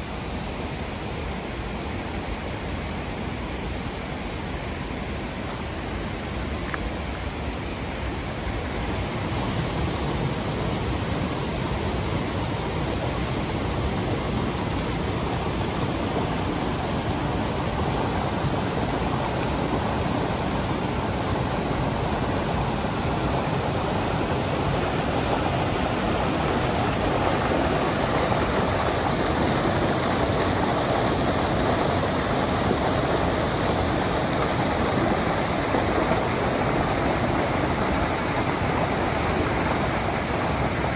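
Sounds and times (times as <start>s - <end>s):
stream rushing over rocks: 0.0s - 40.9s.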